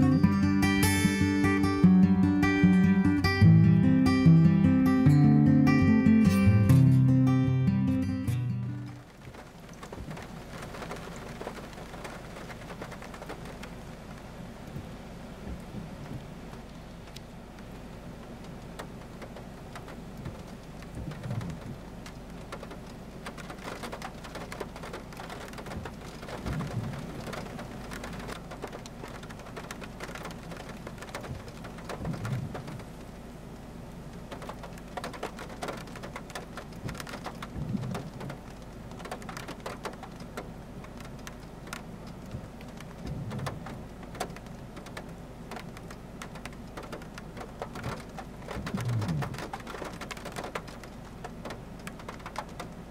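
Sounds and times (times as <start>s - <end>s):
heavy rain falling: 0.0s - 52.9s
low rumble: 48.6s - 49.4s.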